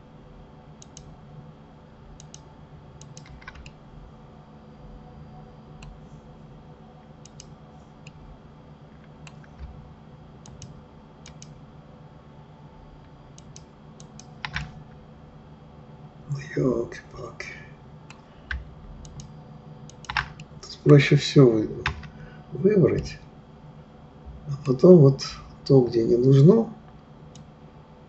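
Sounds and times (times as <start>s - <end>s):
low steady hum: 0.0s - 28.0s
computer mouse and keyboard clicks: 0.8s - 1.1s, 2.2s - 2.4s, 3.0s - 3.8s, 7.2s - 8.2s, 9.0s - 9.8s, 10.4s - 11.6s, 13.4s - 14.8s, 18.1s - 19.3s, 19.9s - 20.5s.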